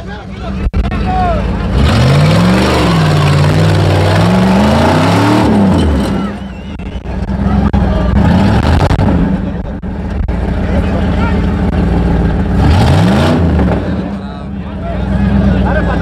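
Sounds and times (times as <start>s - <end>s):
engine revving hard: 1.7s - 6.4s, 7.2s - 9.6s, 11.6s - 14.4s.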